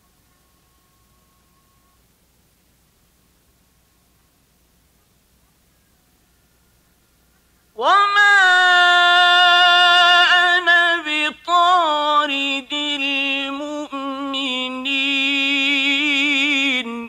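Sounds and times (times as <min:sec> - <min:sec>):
man chanting recitation: 0:07.8 - 0:17.0.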